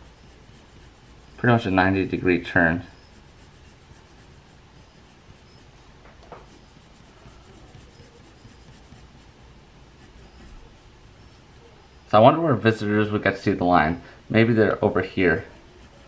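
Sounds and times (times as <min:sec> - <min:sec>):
pencil scratching on paper: 0:00.0 - 0:11.8, 0:15.4 - 0:16.0.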